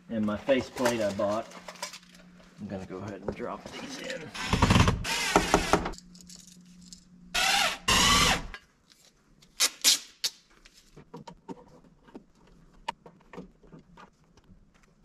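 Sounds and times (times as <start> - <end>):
cordless drill driving screws: 4.4 - 5.9, 7.4 - 8.5.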